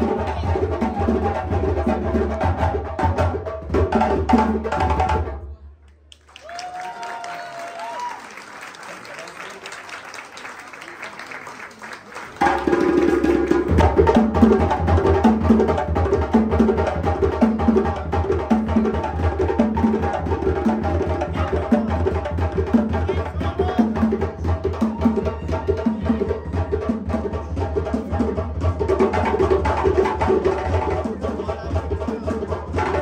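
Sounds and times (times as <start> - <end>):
faint applause: 5.8 - 13.0.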